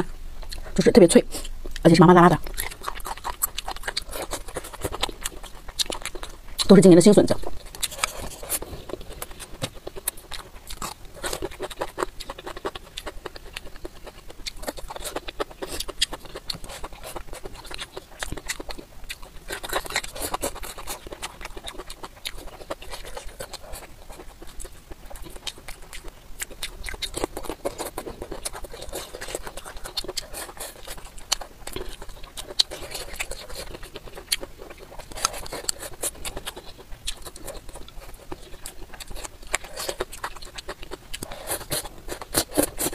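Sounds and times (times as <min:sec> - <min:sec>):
chewing and crunching: 0:00.4 - 0:42.9.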